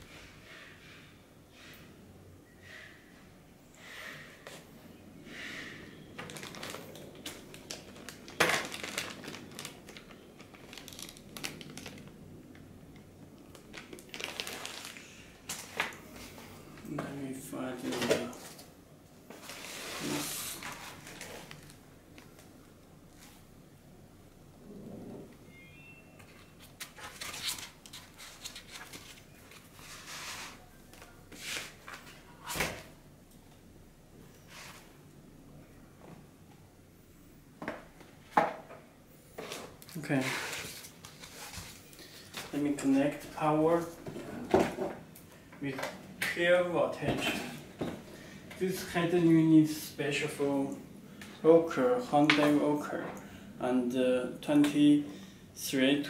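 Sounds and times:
plastic bags crinkling: 6.2 - 12.6, 13.4 - 15.8, 20.6 - 22.3.

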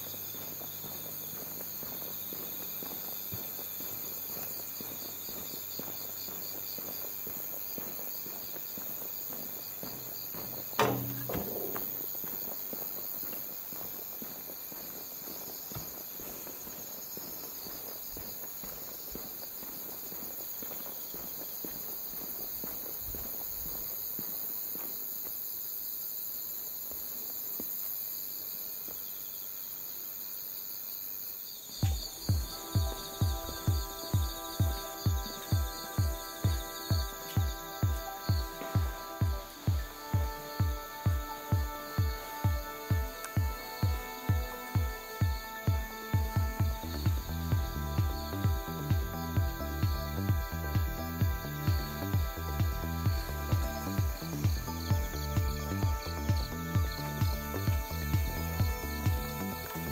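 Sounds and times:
footsteps walking: 0.0 - 25.4, 31.7 - 59.8
insects chirping: 0.0 - 59.9
loud knock: 10.8 - 12.0.

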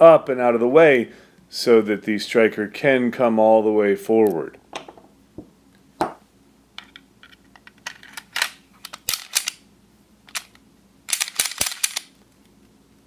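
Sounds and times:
pistol slide clicking and clacking: 7.8 - 9.6, 10.3 - 12.2.

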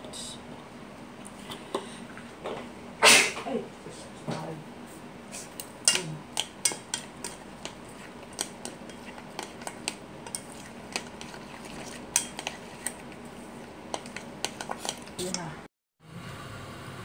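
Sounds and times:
utensil clacking in metal bowl: 5.6 - 15.5.

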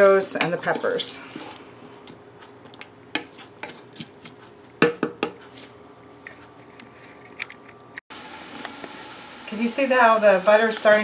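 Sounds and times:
spoon scraping pot: 0.0 - 2.2
wooden spoon knocking on pot: 4.8 - 5.4
vegetables sizzling: 8.1 - 11.0.

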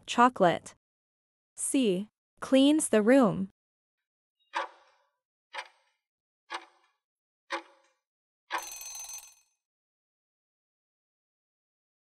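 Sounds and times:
timer ticks: 4.6 - 4.9, 5.6 - 5.8, 6.5 - 6.8, 7.5 - 7.9
ringing tone: 8.6 - 9.5.

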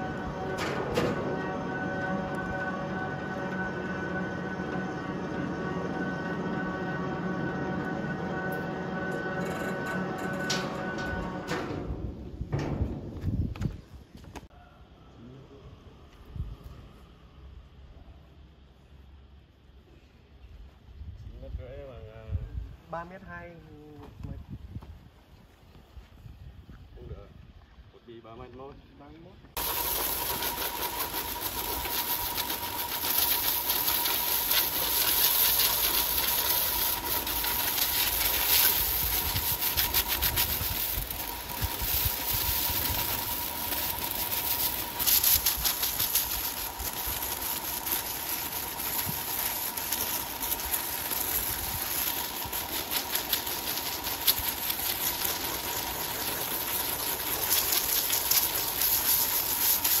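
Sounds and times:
powered wood saw running: 0.0 - 11.5, 29.6 - 60.0.

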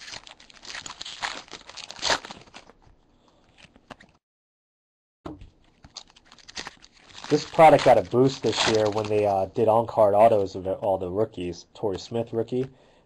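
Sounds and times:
foil wrapper crinkling and tearing: 0.0 - 4.1, 5.7 - 9.5
cards being handled: 5.3 - 9.3.

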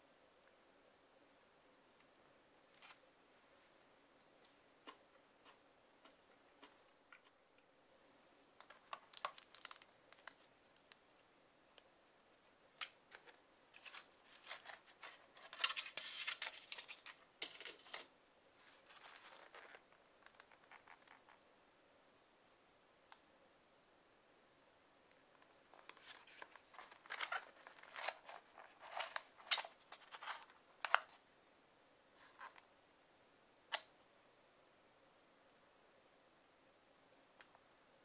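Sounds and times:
thin plastic lid crinkling: 8.6 - 11.0, 12.8 - 21.4, 25.6 - 31.2.

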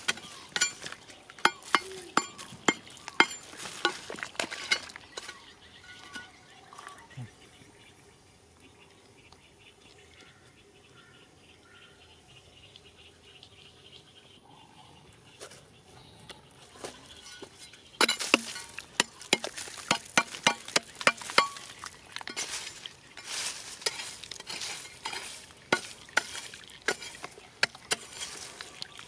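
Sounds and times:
digging tool striking dirt: 0.0 - 5.4, 18.0 - 28.7
loose soil pattering down: 0.0 - 7.2, 16.7 - 29.0.

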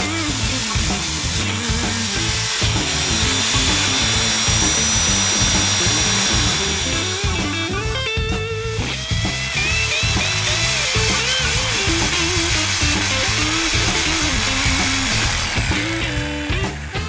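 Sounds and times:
jigsaw cutting metal: 0.0 - 17.0.

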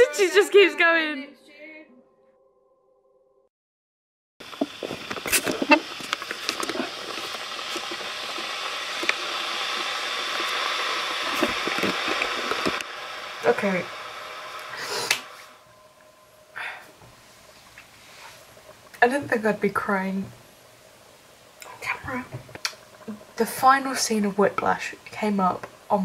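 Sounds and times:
steady outdoor hiss: 4.4 - 26.0.

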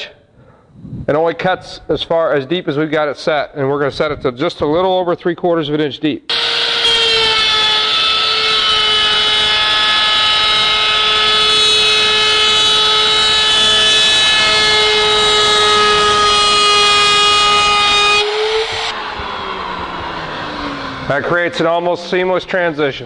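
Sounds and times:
router whining: 6.3 - 21.5.

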